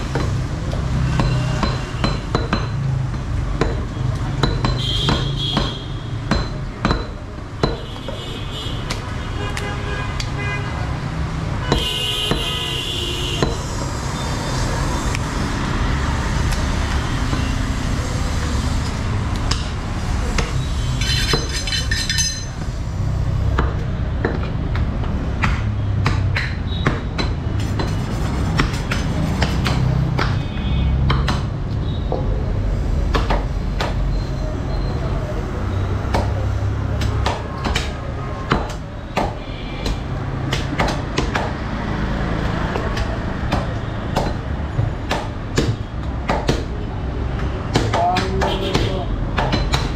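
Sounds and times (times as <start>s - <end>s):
cleavers chopping on wood: 0.0s - 9.2s, 13.4s - 13.8s, 18.8s - 20.6s, 23.5s - 27.9s, 28.5s - 32.4s, 33.0s - 34.1s, 36.0s - 41.7s, 42.5s - 49.9s
low rumble of traffic: 0.0s - 49.9s.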